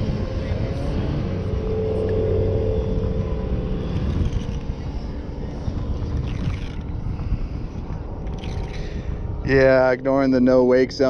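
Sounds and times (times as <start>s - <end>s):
motorboat engine drone: 0.0s - 11.0s
wind on microphone: 0.0s - 11.0s.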